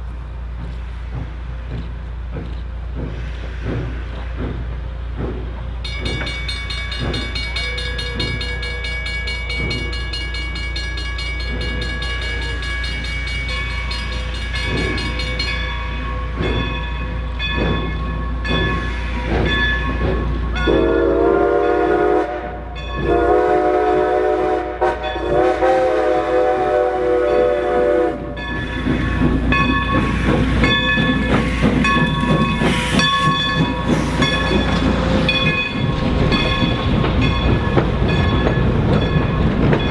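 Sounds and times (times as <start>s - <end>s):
passenger coaches rolling past: 0.0s - 39.9s
steam locomotive exhaust chuffs: 0.0s - 39.9s
high steady steam hiss: 2.8s - 7.4s
steam whistle blasts: 20.7s - 28.4s.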